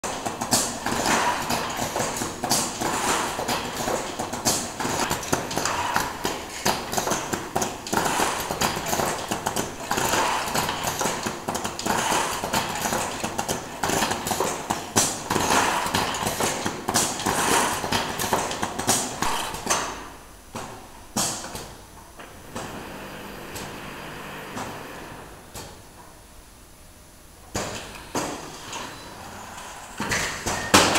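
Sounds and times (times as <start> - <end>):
machine clattering: 0.0 - 19.9.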